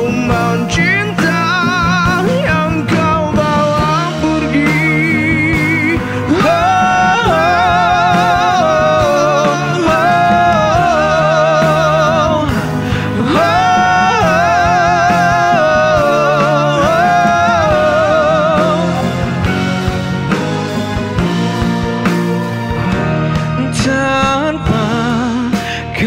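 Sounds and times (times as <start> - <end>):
live band playing: 0.0 - 26.0
two men singing high notes: 3.8 - 19.8.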